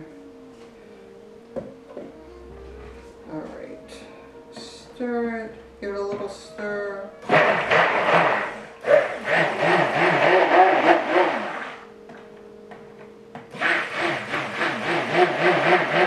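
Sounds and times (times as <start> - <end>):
stick blender motor: 7.2 - 11.8, 13.6 - 16.0.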